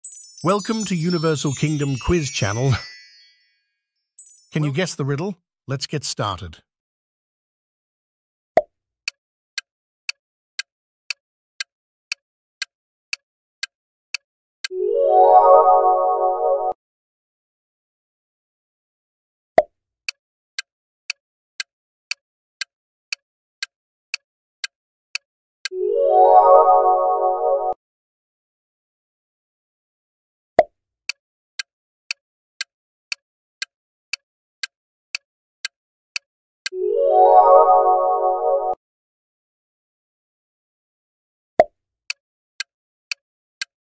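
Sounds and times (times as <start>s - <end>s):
countdown clock ticking: 0.1s - 2.9s.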